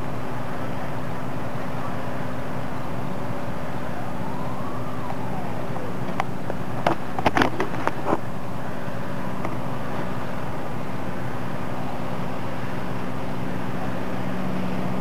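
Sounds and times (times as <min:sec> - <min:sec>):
fire engine droning: 0:00.0 - 0:15.0
sharp cracks and pops: 0:06.0 - 0:08.2.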